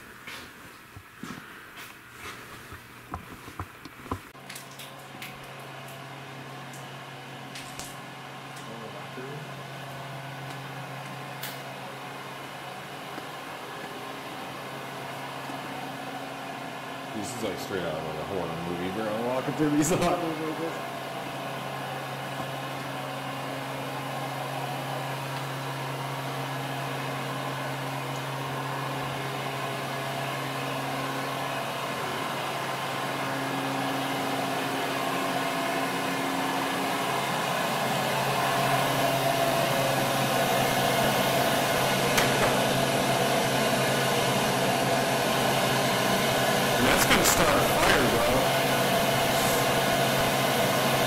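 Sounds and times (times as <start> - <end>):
rushing fan-like air noise: 13.0 - 51.0
machine hum: 37.2 - 51.0.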